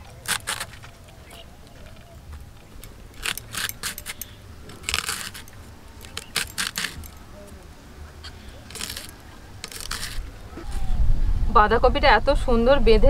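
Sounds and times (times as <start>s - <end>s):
crisp crunching cabbage cuts: 0.0s - 7.6s, 8.2s - 10.3s.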